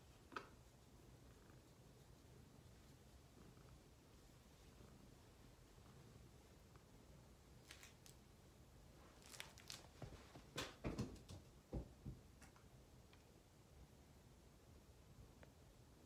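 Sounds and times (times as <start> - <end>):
faint rustles and soft taps: 9.0 - 13.4.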